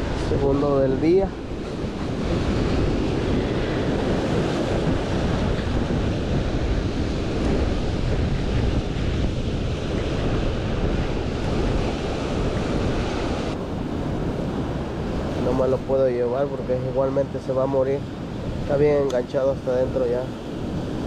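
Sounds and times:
ocean surf washing on beach: 0:00.0 - 0:21.0
wind buffeting microphone: 0:00.0 - 0:21.0.

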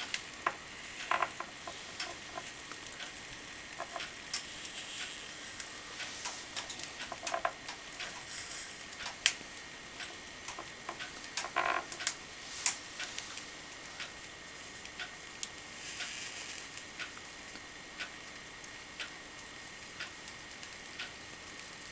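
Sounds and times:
hot wire cutter crackling in foam: 0:00.0 - 0:13.5
faint hiss: 0:00.0 - 0:21.9.

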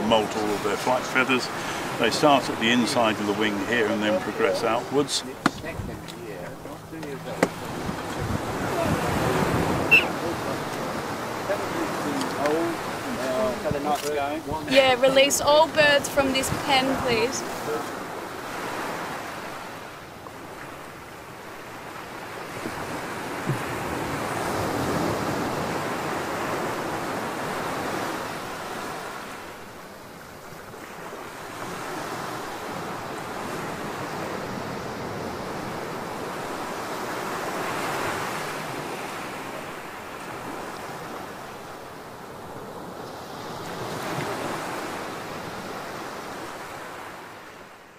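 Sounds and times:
surf breaking on shore: 0:00.0 - 0:47.9
wind buffeting microphone: 0:03.3 - 0:18.4.

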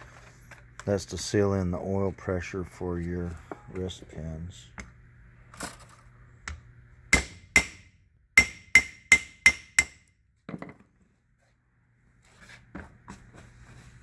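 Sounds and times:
hammer striking steel driver: 0:07.1 - 0:10.1.

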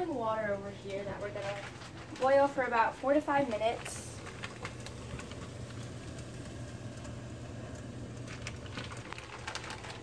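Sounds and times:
pot of water boiling: 0:00.0 - 0:10.0
steady low hum: 0:00.0 - 0:10.0
plastic bag crinkling: 0:01.2 - 0:02.8, 0:03.4 - 0:06.5, 0:08.1 - 0:10.0.

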